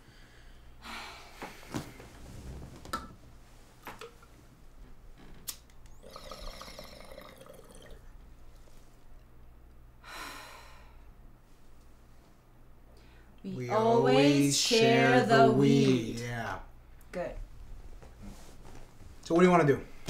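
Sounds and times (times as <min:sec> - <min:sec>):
water bubbling in a bong: 0:06.0 - 0:08.1.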